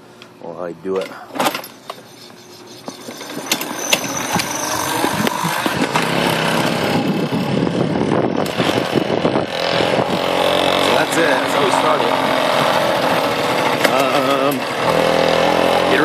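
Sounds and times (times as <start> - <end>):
moped rolling clicks and rattles: 2.9 - 7.7
two-stroke moped engine running: 3.0 - 16.0.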